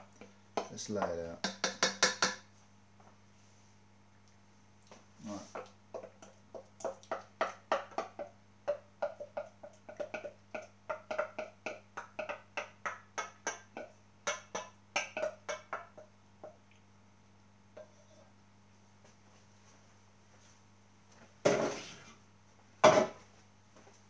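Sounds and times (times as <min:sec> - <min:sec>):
utensil knocking against a pan: 0:00.6 - 0:02.5, 0:05.5 - 0:16.6.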